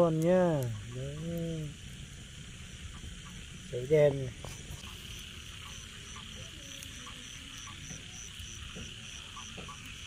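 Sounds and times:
steady high insect hiss: 0:00.0 - 0:10.0
insect chirping in even pulse: 0:00.7 - 0:10.0
short frog calls: 0:04.4 - 0:10.0.

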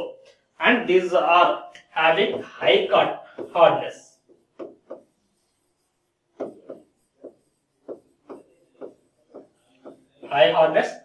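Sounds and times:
stylus tapping on glass: 0:04.6 - 0:05.1, 0:06.4 - 0:10.0.

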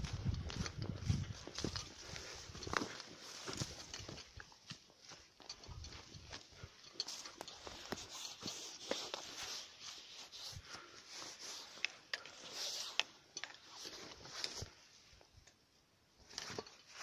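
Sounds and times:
footsteps through dry grass: 0:00.0 - 0:12.9
stems crackling: 0:00.0 - 0:15.6.

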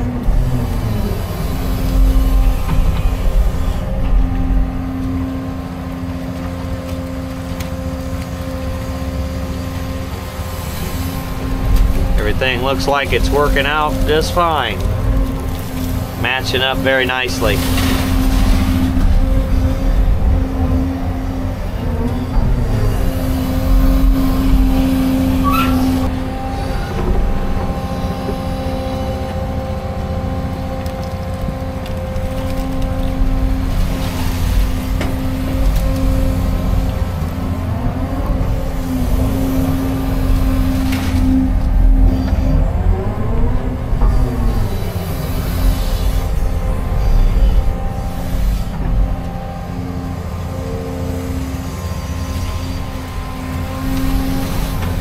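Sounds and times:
excavator engine and hydraulics: 0:00.0 - 0:55.0
short rising squeal: 0:25.3 - 0:26.1.

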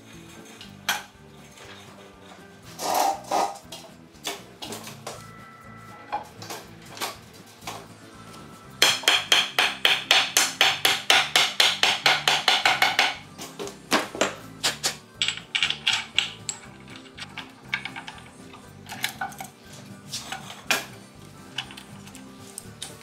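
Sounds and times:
music with fast percussive beat: 0:05.0 - 0:13.3.

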